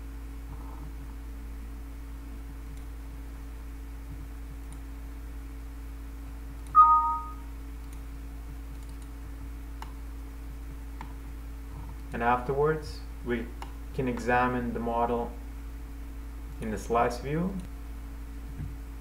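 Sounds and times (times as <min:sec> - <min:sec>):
low electrical hum: 0:00.0 - 0:19.0
two-tone computer beep: 0:06.8 - 0:07.4.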